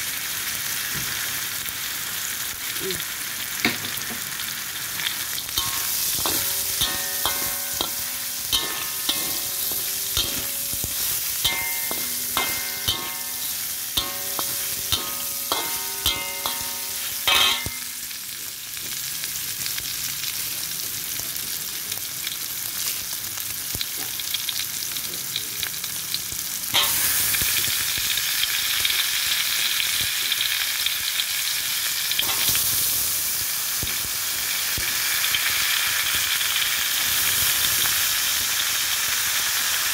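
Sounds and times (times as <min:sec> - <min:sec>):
chicken sizzling in a pan: 0:00.0 - 0:39.9
metal spatula scraping a pan: 0:05.3 - 0:18.2, 0:26.8 - 0:27.4.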